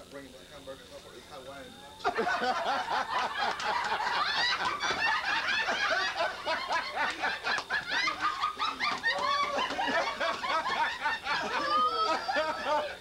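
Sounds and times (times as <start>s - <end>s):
group of people laughing: 2.0s - 13.0s.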